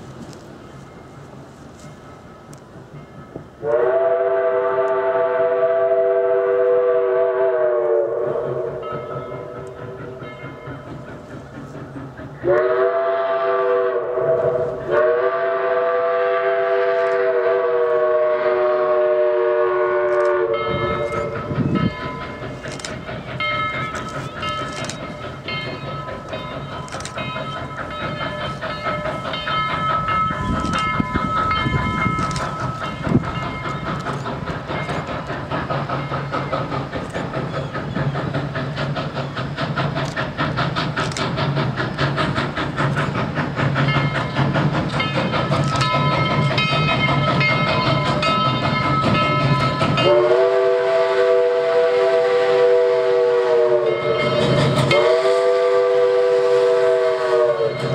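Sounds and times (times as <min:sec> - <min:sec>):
steam locomotive exhaust: 0:00.0 - 0:57.9
steam whistle blast: 0:03.6 - 0:10.2, 0:12.4 - 0:21.6, 0:49.9 - 0:57.9
crossing bell ringing: 0:08.8 - 0:11.4, 0:20.5 - 0:35.2, 0:43.8 - 0:50.4, 0:53.8 - 0:55.3, 0:57.6 - 0:57.9.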